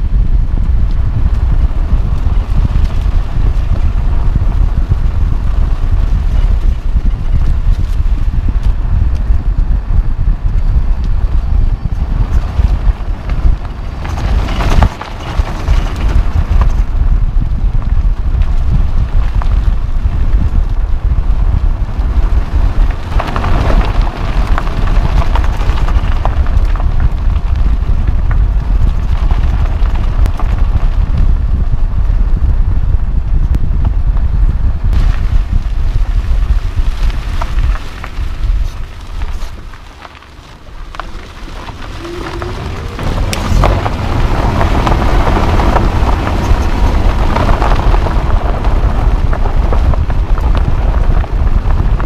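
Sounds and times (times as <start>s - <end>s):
low road rumble: 0.0s - 52.0s
wind buffeting: 0.0s - 52.0s
small stones ticking: 34.9s - 52.0s
tyre crunching over gravel: 35.0s - 48.4s.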